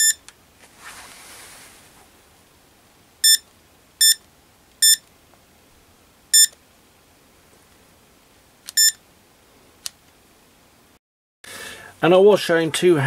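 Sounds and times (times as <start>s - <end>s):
multimeter short high beeps: 0.0s - 0.2s, 3.2s - 3.4s, 4.0s - 4.2s, 4.8s - 5.0s, 6.4s - 6.6s, 8.7s - 9.0s.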